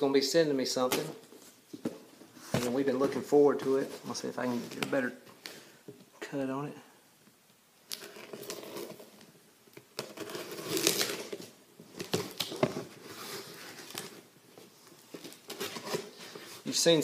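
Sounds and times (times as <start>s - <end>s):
cardboard scraping and ripping: 10.0s - 14.1s.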